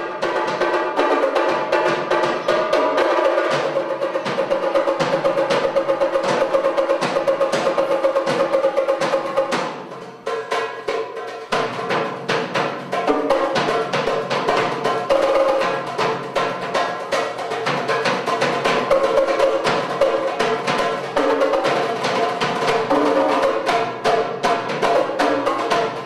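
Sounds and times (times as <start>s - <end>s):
drums struck with sticks: 0.0s - 26.0s
goblet drum played by hand: 0.0s - 26.0s.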